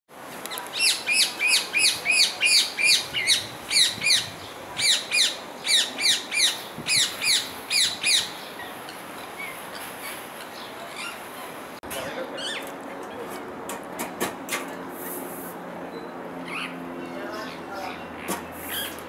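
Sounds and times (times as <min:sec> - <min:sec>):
parakeet calling: 0:00.7 - 0:11.2, 0:12.3 - 0:12.7, 0:16.4 - 0:19.0.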